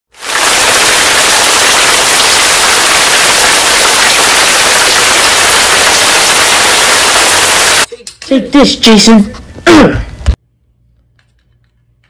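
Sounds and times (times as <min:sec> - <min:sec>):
loud static hiss: 0:00.1 - 0:07.9.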